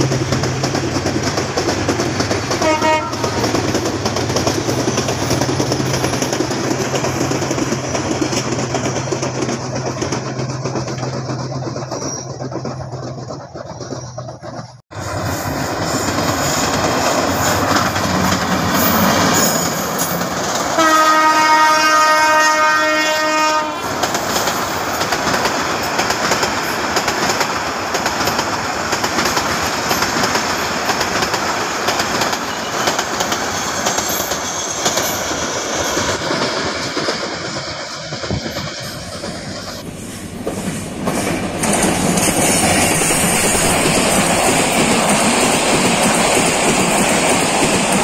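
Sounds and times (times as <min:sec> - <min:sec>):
train wheels rumbling on rails: 0:00.0 - 0:48.0
diesel locomotive horn blast: 0:02.6 - 0:03.5, 0:20.8 - 0:23.9.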